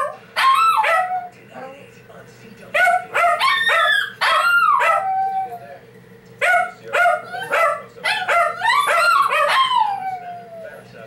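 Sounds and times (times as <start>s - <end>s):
dog yipping: 0.0s - 1.3s, 2.8s - 5.6s, 6.4s - 10.4s
dog howling: 0.0s - 1.4s, 2.8s - 5.8s, 6.4s - 10.9s.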